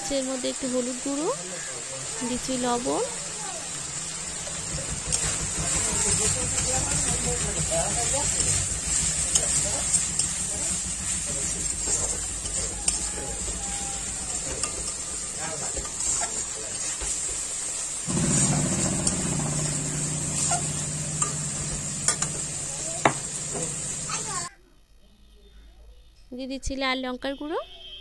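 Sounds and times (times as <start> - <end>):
food sizzling in pan: 0.0 - 24.5
low steady hum: 18.1 - 26.4.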